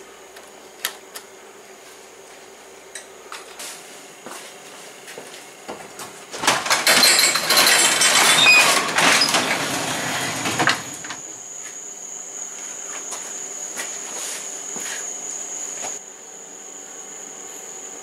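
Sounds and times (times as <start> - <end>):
garage door rollers rattling: 6.3 - 11.3
insects chirring: 7.1 - 18.0.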